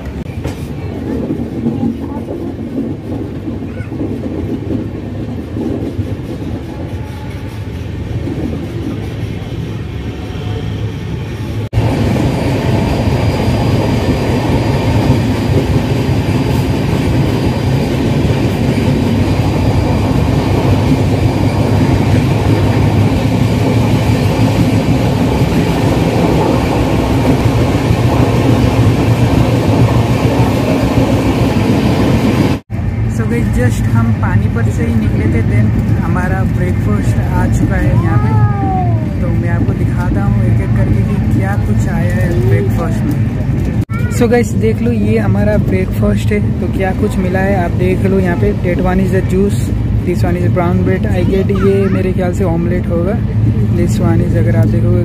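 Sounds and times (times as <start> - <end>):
station ambience: 0.0 - 55.0
train wheels running on rails: 0.0 - 55.0.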